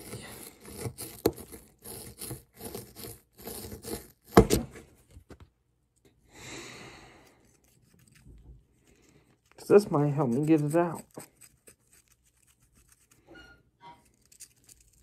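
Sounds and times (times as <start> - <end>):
digging tool scraping a block: 0.0 - 4.8, 9.5 - 13.3.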